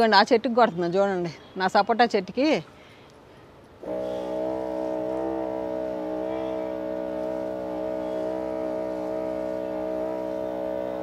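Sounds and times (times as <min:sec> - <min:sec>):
motorized sprayer humming: 0:03.8 - 0:11.0.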